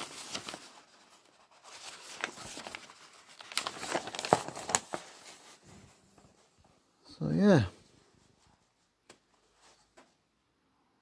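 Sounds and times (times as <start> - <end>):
paper crinkling and rustling: 0.0 - 6.8.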